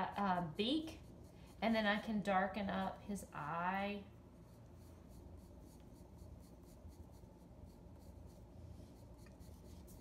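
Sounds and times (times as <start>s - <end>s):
pencil scratching on paper: 0.0s - 2.9s, 4.3s - 10.0s.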